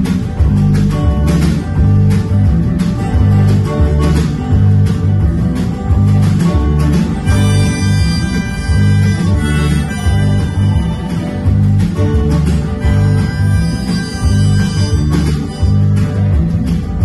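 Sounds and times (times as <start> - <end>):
drum kit beat: 0.0 - 17.0
electric guitar: 0.0 - 17.0
strummed acoustic guitar: 0.0 - 17.0.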